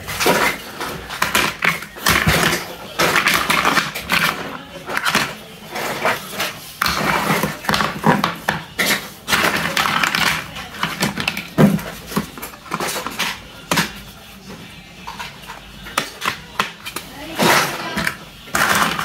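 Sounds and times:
plastic toy pieces clattering: 0:00.0 - 0:14.0.

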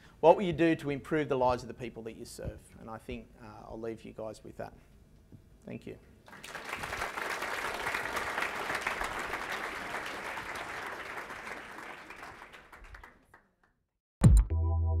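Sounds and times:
audience applauding: 0:06.3 - 0:13.4.

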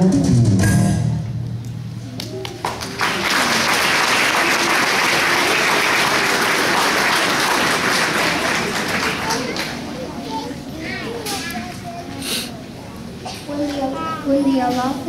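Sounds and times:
audience applause: 0:02.2 - 0:10.1.

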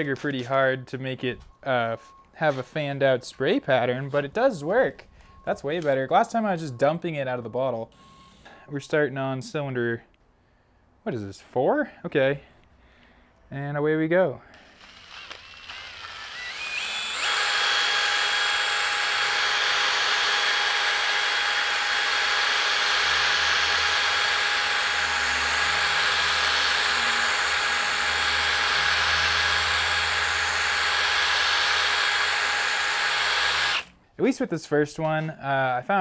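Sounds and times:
cordless drill whining: 0:14.5 - 0:34.0.

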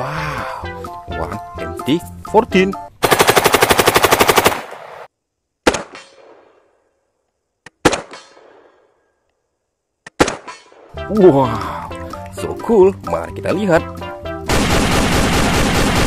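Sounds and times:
automatic gunfire burst: 0:03.0 - 0:04.8, 0:14.5 - 0:16.0
single gunshots with echo: 0:05.6 - 0:06.7, 0:07.8 - 0:08.8.

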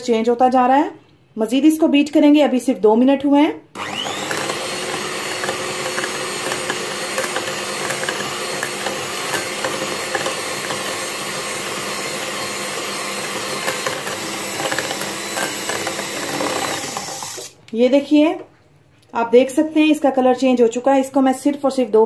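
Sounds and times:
electric hand mixer whirring: 0:03.8 - 0:17.6.

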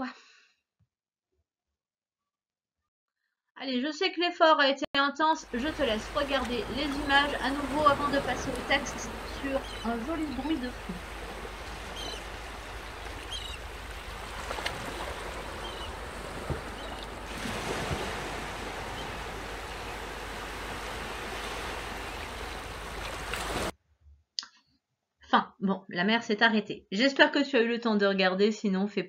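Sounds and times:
sea waves washing on shore: 0:05.4 - 0:23.7.

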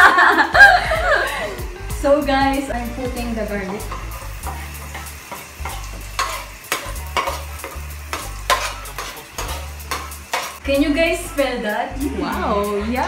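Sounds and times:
garlic sizzling in hot oil: 0:00.1 - 0:13.0
utensil scraping and tapping pan: 0:03.6 - 0:10.6.

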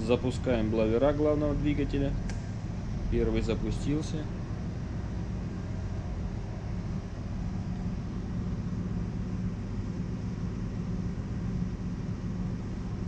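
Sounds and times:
engine-room machinery drone: 0:00.0 - 0:13.0.

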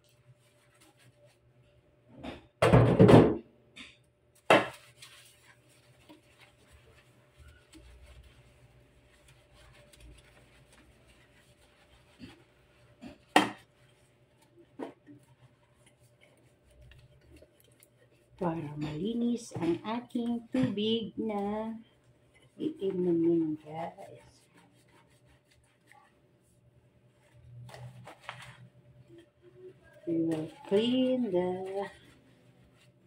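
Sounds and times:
soft rubbing scrubbing: 0:00.0 - 0:01.8, 0:04.4 - 0:33.0.

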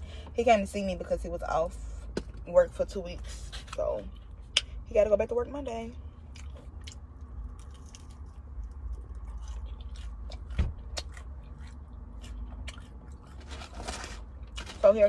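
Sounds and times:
low hum: 0:00.0 - 0:15.0
chewing fried chicken: 0:06.2 - 0:14.8.

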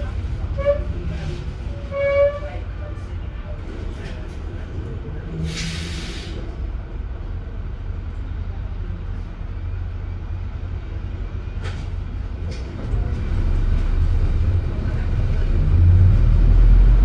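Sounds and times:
bus diesel engine drone: 0:02.6 - 0:17.0
brief hissing: 0:05.4 - 0:06.4.

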